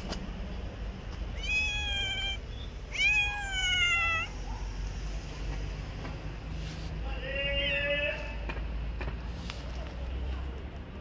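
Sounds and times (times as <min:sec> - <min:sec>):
cat meowing: 0:01.3 - 0:04.5.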